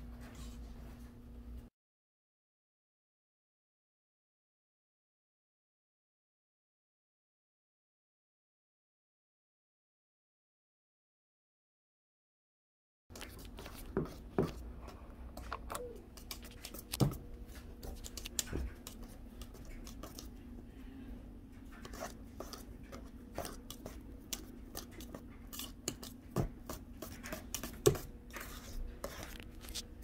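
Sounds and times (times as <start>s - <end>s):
faint steady hum: 13.1s - 30.0s
whisk scraping metal bowl: 13.2s - 15.5s, 16.1s - 20.5s, 21.6s - 29.9s.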